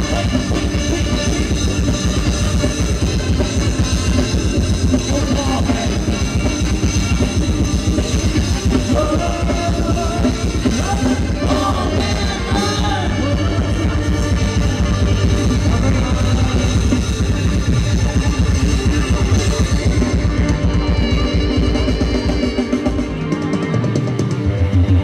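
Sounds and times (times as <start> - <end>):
person singing: 0.0 - 3.5, 4.9 - 6.7, 7.3 - 20.8
drum kit steady beat: 0.0 - 24.4
live band dance music: 0.0 - 25.0.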